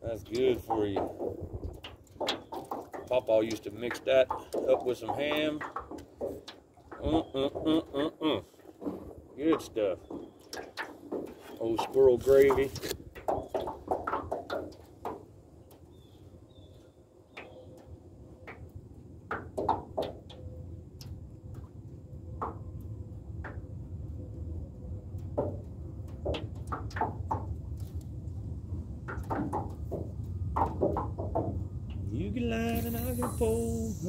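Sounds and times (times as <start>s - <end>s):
wind rumble on microphone: 0.0s - 2.3s, 18.5s - 34.0s
waves knocking against metal boat: 0.0s - 15.3s.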